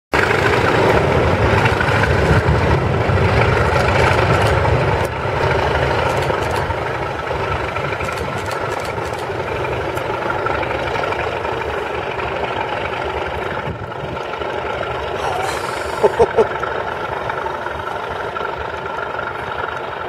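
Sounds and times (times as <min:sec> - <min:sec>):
diesel locomotives passing: 0:00.1 - 0:20.0.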